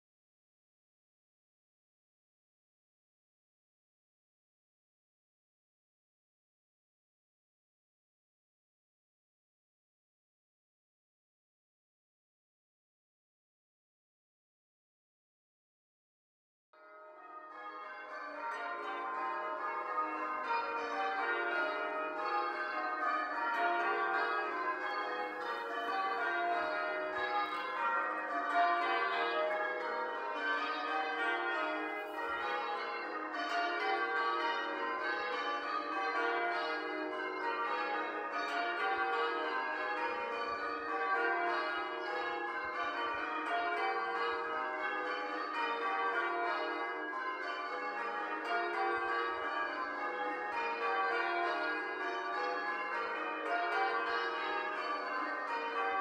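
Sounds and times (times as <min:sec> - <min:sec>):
church bells change ringing: 0:16.8 - 0:56.0.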